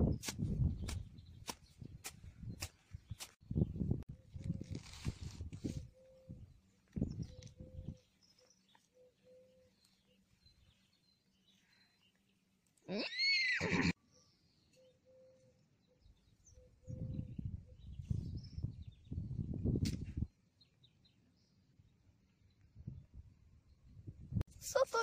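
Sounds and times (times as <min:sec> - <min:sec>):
horse whinnying: 0:12.9 - 0:14.0.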